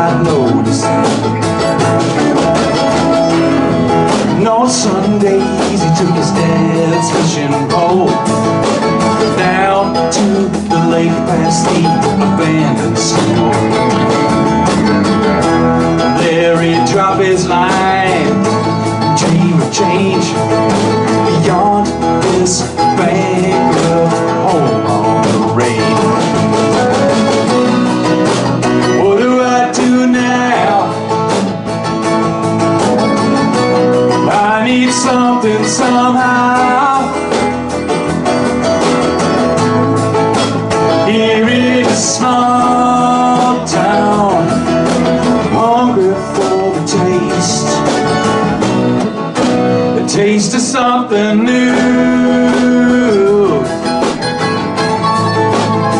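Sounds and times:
guitars and mandolin strumming: 0.0 - 55.9
men singing together: 4.2 - 8.4, 9.3 - 15.0, 16.0 - 26.6, 28.9 - 31.1, 34.2 - 37.4, 41.0 - 48.4, 49.9 - 53.8.

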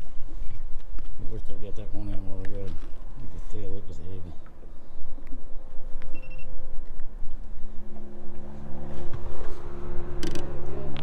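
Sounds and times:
short high beep: 6.1 - 6.5.

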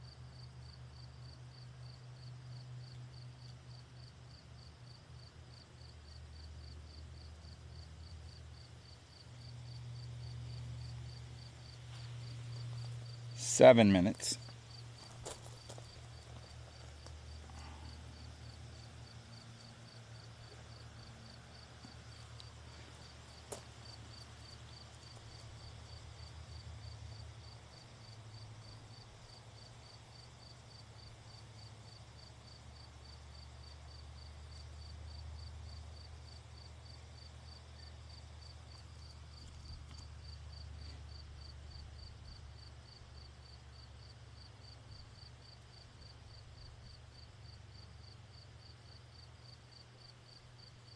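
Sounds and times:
faint insect chirping: 0.0 - 50.9
low steady hum: 0.0 - 50.9.

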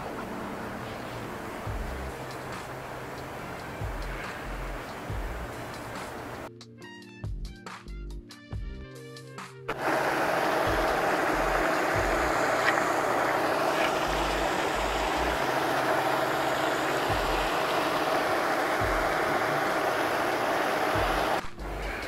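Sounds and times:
aerator splashing water: 0.0 - 6.5, 9.7 - 21.6
steady hum: 0.0 - 6.5, 9.7 - 22.0.

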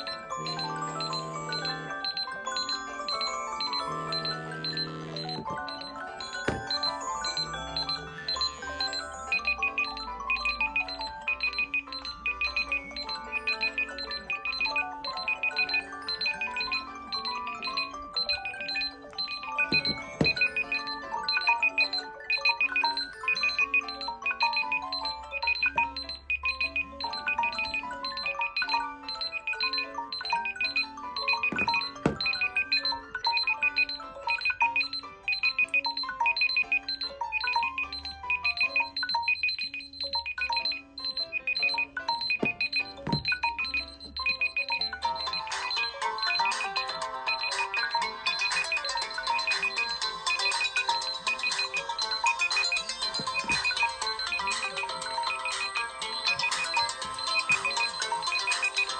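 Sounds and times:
melodic ringtones: 0.0 - 58.9
repeating high beep: 0.0 - 58.9
phone knocks: 4.0 - 7.0, 19.6 - 20.6, 31.3 - 32.5, 42.2 - 43.6, 53.1 - 53.9.

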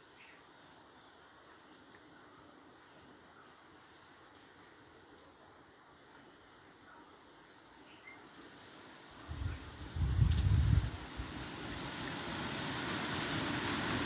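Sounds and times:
steady hiss: 0.0 - 14.0
high bird chirps: 8.4 - 10.7.

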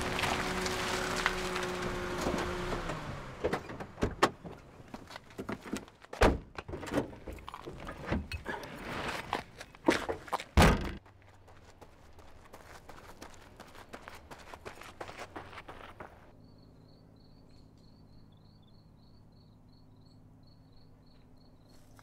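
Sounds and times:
car engine running: 0.0 - 4.6
quick footsteps: 9.4 - 16.3
car door slamming: 10.6 - 11.0
trunk lid thudding shut: 10.6 - 11.0.

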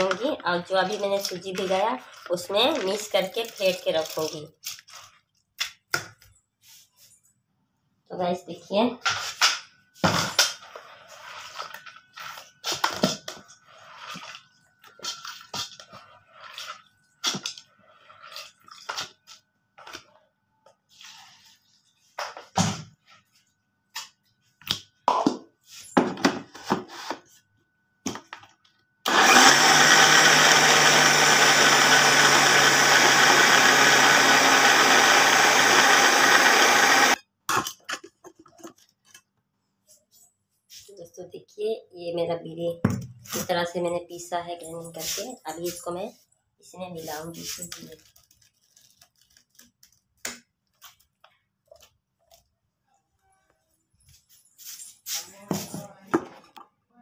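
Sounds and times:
mixer grinder grinding: 29.1 - 37.2.

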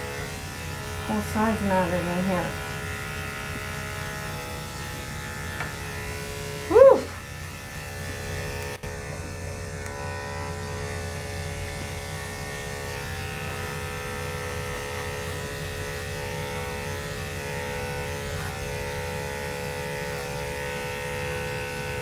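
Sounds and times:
electric clippers humming: 0.0 - 22.0.

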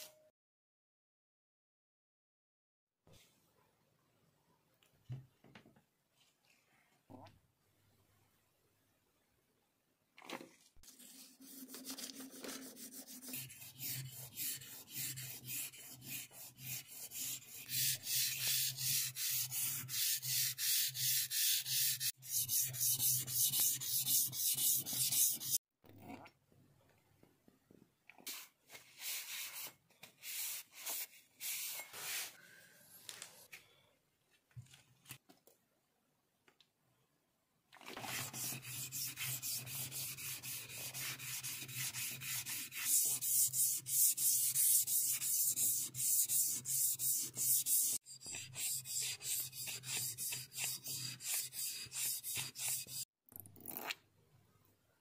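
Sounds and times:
blade rubbing on whetstone: 11.0 - 25.6, 38.2 - 53.0.

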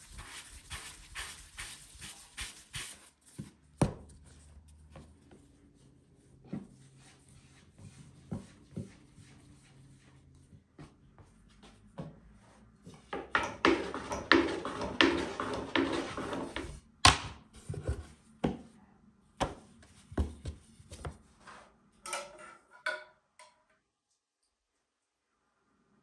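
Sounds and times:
rolling pin rolling dough: 0.0 - 5.5, 13.0 - 16.9
rolling pin knocking on board: 13.2 - 17.4.

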